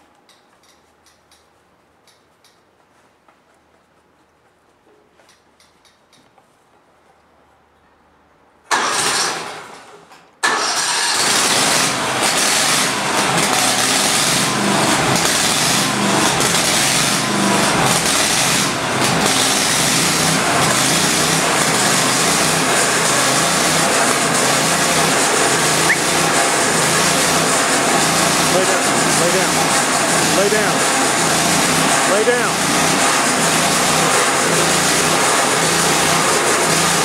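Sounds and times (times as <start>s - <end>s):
engine starting and running: 8.7s - 37.0s.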